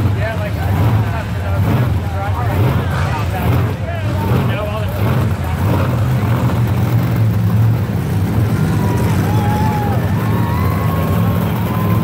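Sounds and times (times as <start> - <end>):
truck engine deep drone: 0.0 - 12.0.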